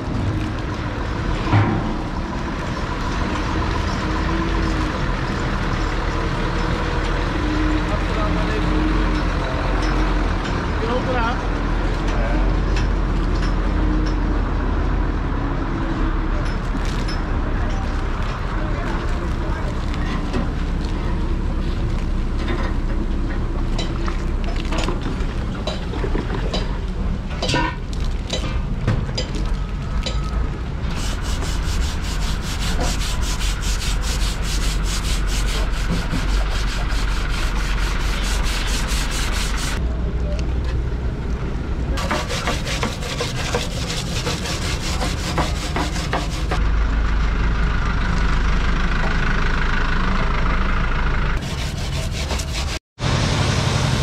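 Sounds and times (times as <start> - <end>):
steady low rumble: 0.0 - 6.2
hand brush scrubbing metal fins: 30.9 - 39.8, 42.0 - 46.6, 51.4 - 52.8.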